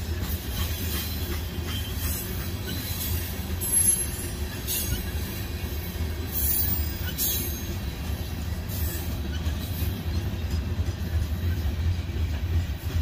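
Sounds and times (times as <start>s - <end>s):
train wheels rumbling on rail: 0.0s - 13.0s.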